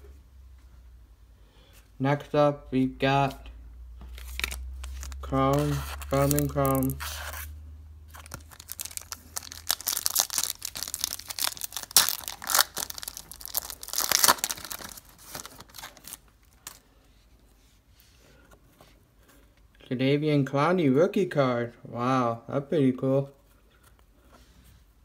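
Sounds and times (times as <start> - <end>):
wrapper tearing and crinkling: 4.2 - 7.5, 8.1 - 16.8.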